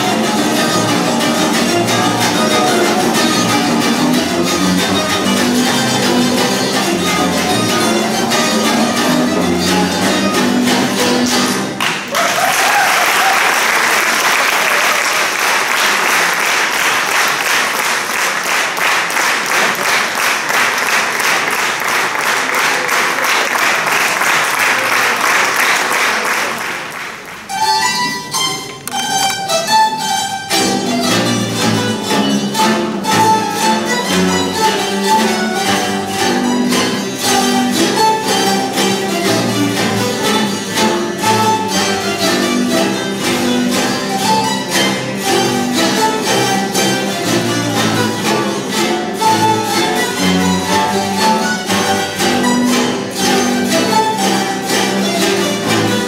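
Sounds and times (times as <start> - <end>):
zither ensemble playing: 0.0 - 18.6, 26.2 - 56.0
audience applauding: 11.8 - 27.5.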